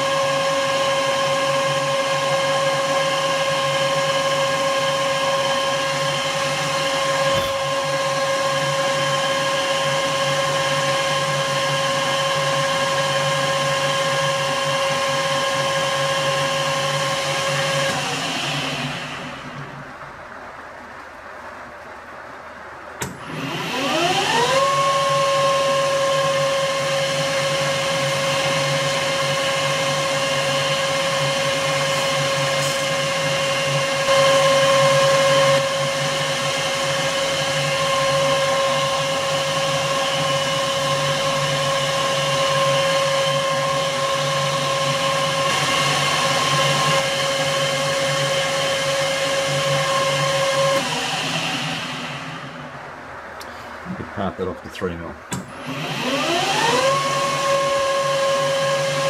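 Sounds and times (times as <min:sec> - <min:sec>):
metal lathe whining: 0:23.0 - 0:52.8, 0:55.3 - 0:59.0.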